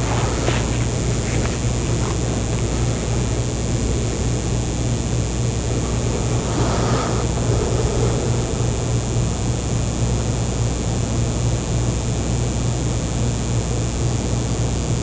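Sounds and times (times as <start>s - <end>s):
faint paper rustles: 0.0s - 9.0s
even hiss: 0.0s - 10.8s
steady low hum: 0.0s - 15.0s.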